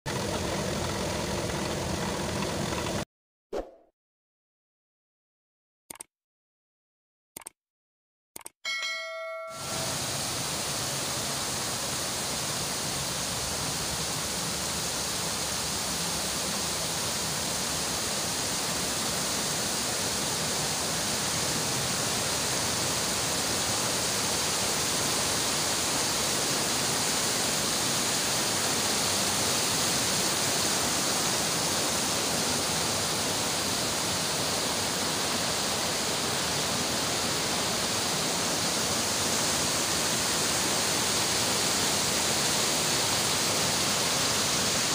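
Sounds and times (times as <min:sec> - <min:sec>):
stream rushing over boulders: 0:09.6 - 0:44.9.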